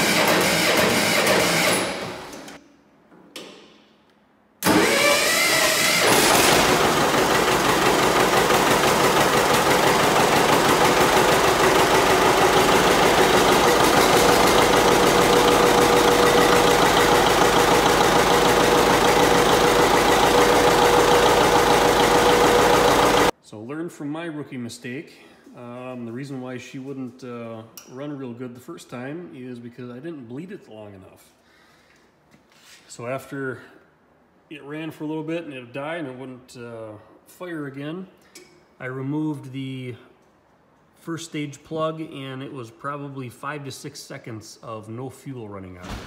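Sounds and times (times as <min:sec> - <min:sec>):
diesel tractor engine running: 0:06.0 - 0:23.3.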